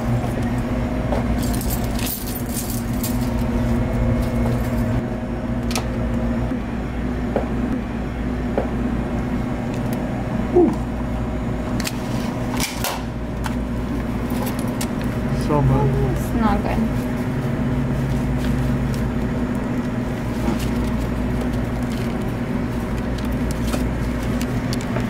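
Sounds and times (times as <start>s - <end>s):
vending machines humming: 0.0s - 25.0s
keys jangling: 1.4s - 3.5s.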